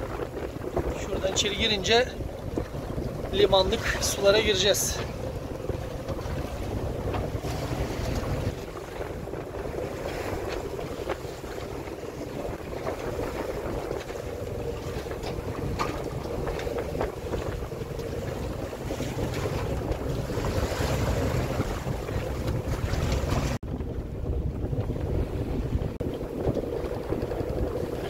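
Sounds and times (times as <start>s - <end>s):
boat engine running: 0.0s - 28.0s
water rushing along hull: 0.0s - 28.0s
wind buffeting microphone: 0.0s - 28.0s.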